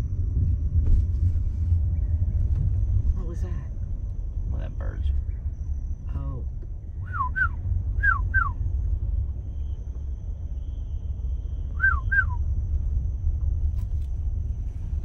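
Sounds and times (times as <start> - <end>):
car driving on dirt road: 0.0 - 15.0
whistled notes sliding down: 7.0 - 8.6, 11.7 - 12.4.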